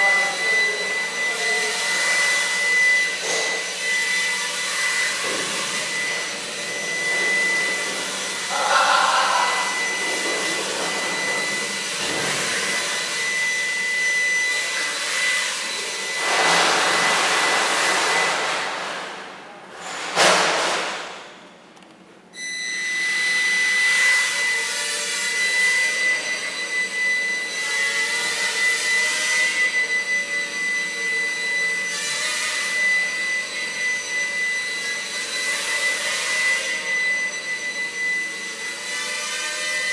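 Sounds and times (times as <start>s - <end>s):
drone motors whining: 0.0s - 16.4s.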